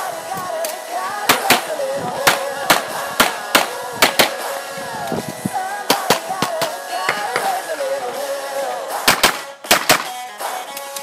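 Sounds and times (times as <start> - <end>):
background music with singing: 0.0 - 11.0
handgun shots: 1.3 - 1.7, 2.3 - 4.4, 9.1 - 10.2.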